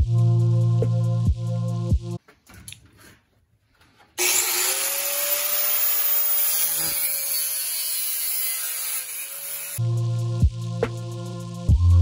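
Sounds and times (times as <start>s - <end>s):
angle grinder cutting metal: 4.2s - 9.8s.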